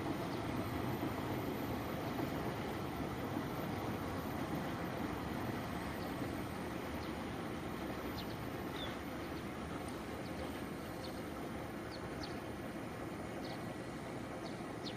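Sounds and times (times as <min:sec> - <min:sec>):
birds chirping: 0:05.9 - 0:12.6, 0:13.3 - 0:14.9.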